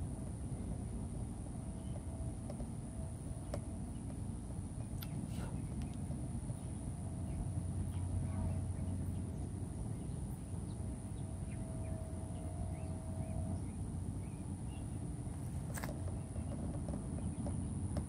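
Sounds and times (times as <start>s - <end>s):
faint steady hum: 0.0s - 18.0s.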